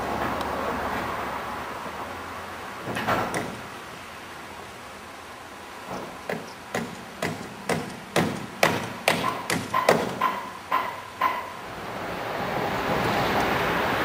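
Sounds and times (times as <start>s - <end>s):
hammer blows ringing: 6.3s - 11.6s.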